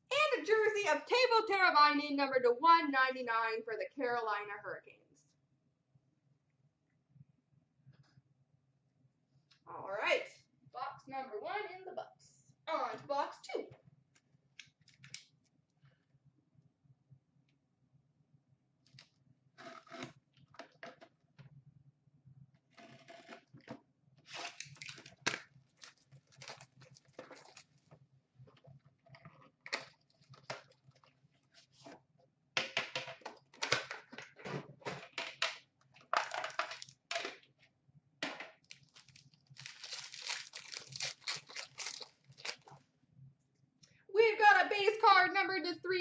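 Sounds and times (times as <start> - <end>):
plastic wrap crinkling and tearing: 24.3 - 27.9, 38.6 - 42.8.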